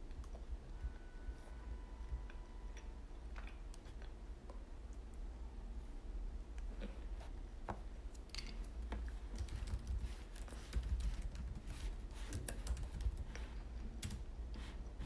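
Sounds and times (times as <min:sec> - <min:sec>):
laptop keyboard typing: 0:09.3 - 0:13.3.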